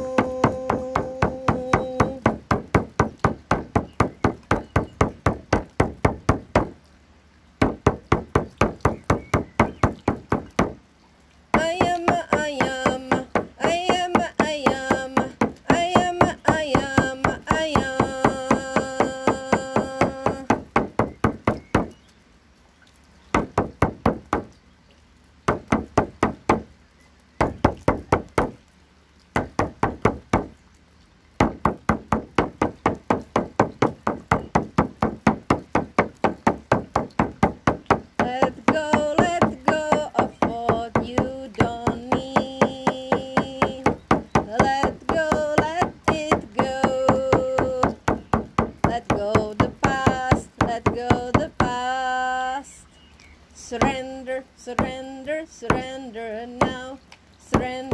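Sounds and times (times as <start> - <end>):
woman singing long notes: 0.0 - 4.4, 11.5 - 20.9, 37.9 - 53.0, 53.6 - 57.9
frame drum beating: 0.0 - 6.8, 7.6 - 10.8, 11.5 - 21.9, 23.4 - 24.5, 25.5 - 26.7, 27.4 - 28.6, 29.4 - 30.6, 31.4 - 51.9, 56.6 - 56.9.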